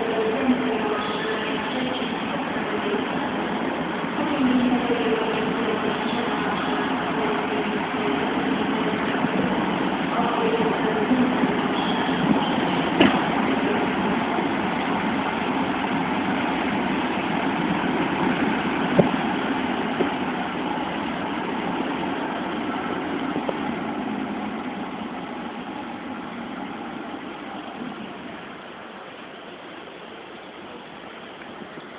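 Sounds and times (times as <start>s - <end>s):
train rumbling on rails: 0.0s - 31.9s.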